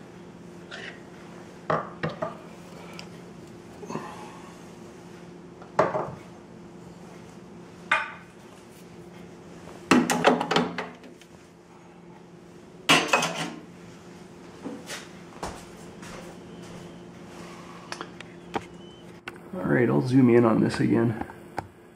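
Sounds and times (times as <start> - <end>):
steady low hum: 0.0 - 21.9
portafilter metal knocks and clatter: 9.9 - 11.1.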